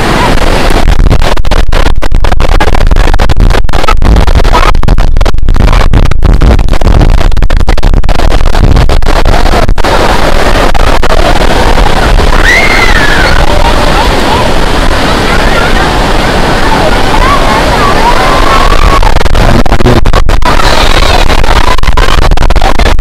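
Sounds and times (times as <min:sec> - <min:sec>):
breaking surf: 0:00.0 - 0:23.0
wind on microphone: 0:00.0 - 0:23.0
person speaking: 0:19.4 - 0:20.1.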